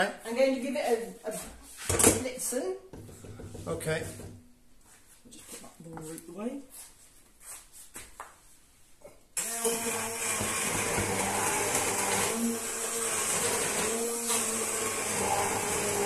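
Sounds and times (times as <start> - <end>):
stick blender running: 9.4 - 16.0.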